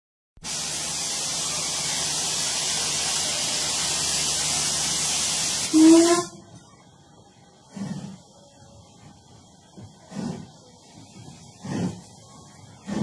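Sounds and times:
locomotive steam hissing: 0:00.4 - 0:06.4, 0:07.6 - 0:13.0
low steam whistle blast: 0:00.5 - 0:06.5.

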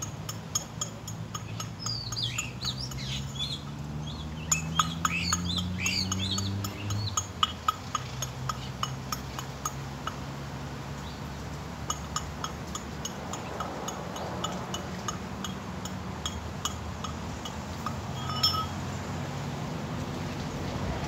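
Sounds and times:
ringing clink: 0:18.1 - 0:18.8.

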